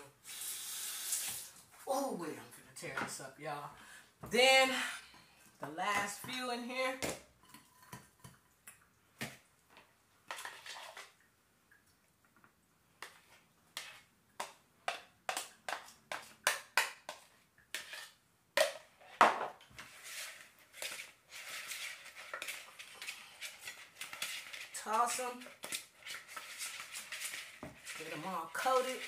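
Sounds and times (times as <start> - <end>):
food shaken in plastic bowl: 19.9 - 29.0.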